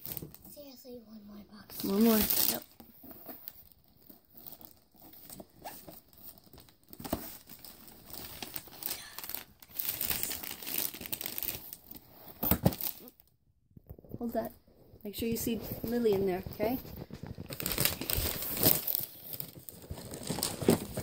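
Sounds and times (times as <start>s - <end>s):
cardboard scraping and tearing: 16.5s - 21.0s.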